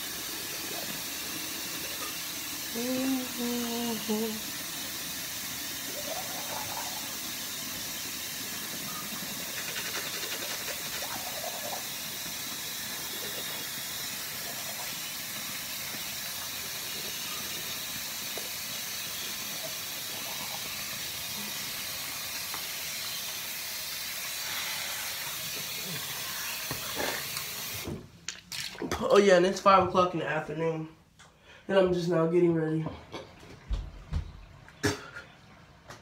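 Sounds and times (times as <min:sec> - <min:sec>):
toothbrush scrubbing teeth: 0:08.8 - 0:11.9.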